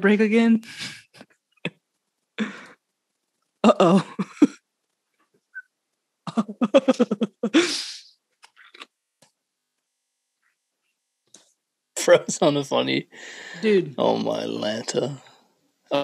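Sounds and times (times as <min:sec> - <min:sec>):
faint crinkles: 0:01.1 - 0:03.6, 0:04.3 - 0:06.2
person laughing: 0:03.7 - 0:04.6, 0:06.3 - 0:08.0
breathy exhale: 0:13.1 - 0:13.7.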